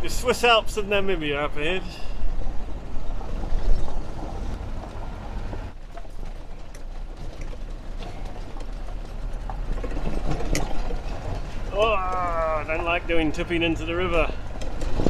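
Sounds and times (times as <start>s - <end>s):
tyres on gravel: 0.0s - 15.0s
vehicle engine rumble: 0.0s - 15.0s
knocks and rattles: 2.4s - 12.8s, 14.3s - 15.0s.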